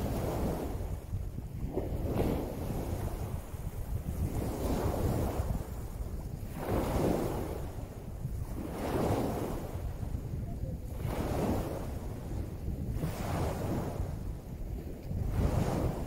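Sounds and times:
wind rumble on microphone: 0.0 - 16.0
waves washing up pebbly shore: 4.1 - 10.2, 10.9 - 14.3, 15.1 - 16.0.

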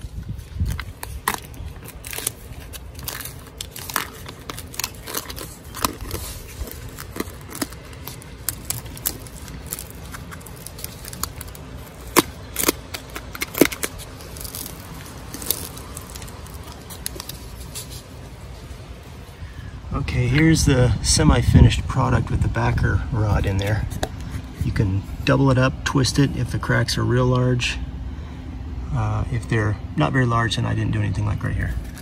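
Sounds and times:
foam scraping and crackling on stucco: 0.0 - 19.4, 31.6 - 32.0.

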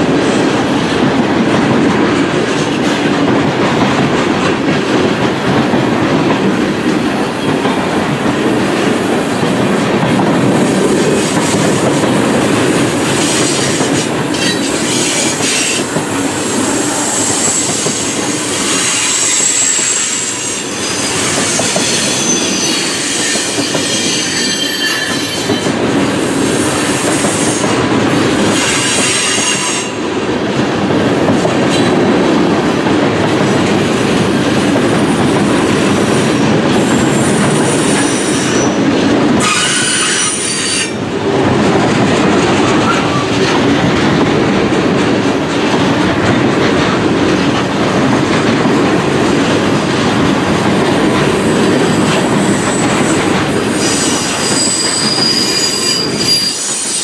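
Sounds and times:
train wheels rumbling on rails: 0.0 - 57.0
high-pitched wheel squeal: 18.7 - 25.6, 39.4 - 41.0, 53.8 - 57.0
wheels clacking over rail joints: 30.3 - 57.0.

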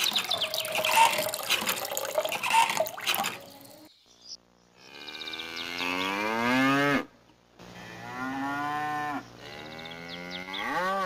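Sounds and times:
cows mooing: 8.0 - 11.0.

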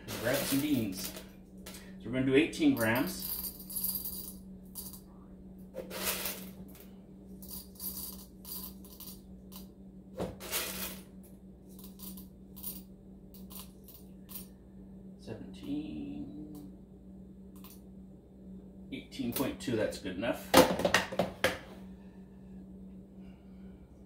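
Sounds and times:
coffee beans rattling in metal cup: 0.0 - 1.3, 2.7 - 5.0, 5.8 - 6.6, 7.4 - 9.6, 10.4 - 11.1, 11.7 - 12.8, 13.4 - 14.5.

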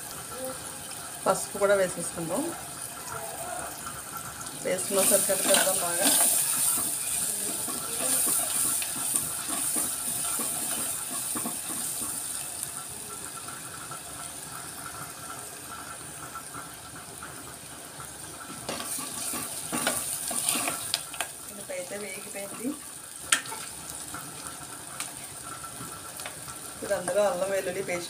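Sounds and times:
onions sizzling in hot oil: 0.0 - 28.0
metal spoon stirring: 4.8 - 12.2, 18.7 - 21.2.

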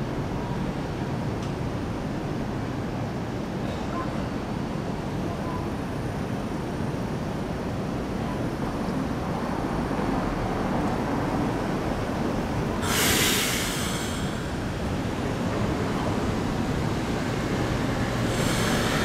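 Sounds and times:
road and rail traffic rumble: 0.0 - 19.0
loud hiss: 12.8 - 15.2, 18.1 - 19.0.

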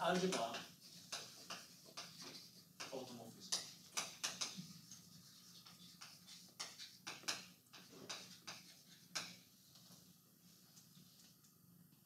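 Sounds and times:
chalk tapping on blackboard: 0.1 - 9.5.

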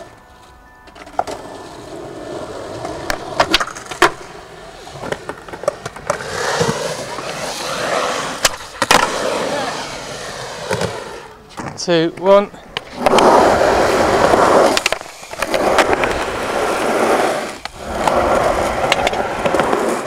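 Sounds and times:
skateboard wheels rolling: 0.0 - 20.0
skateboard clacks: 2.8 - 4.3, 4.9 - 6.9, 10.6 - 20.0.

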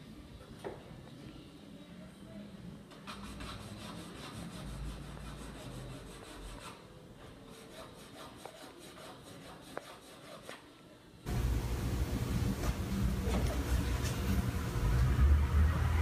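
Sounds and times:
drawing tool scratching on wall: 3.0 - 6.9, 7.5 - 10.6.

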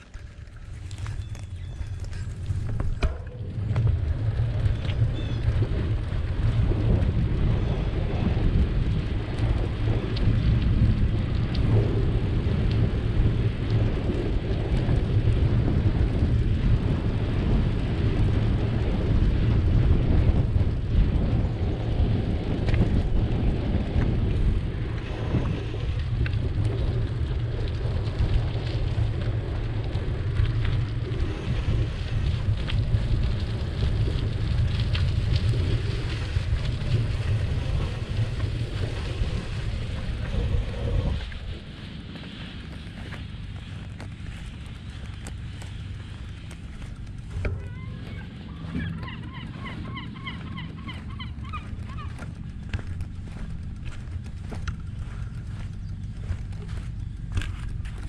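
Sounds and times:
bicycle tyres on rough asphalt: 0.0 - 58.0
wind buffeting microphone: 0.0 - 58.0.

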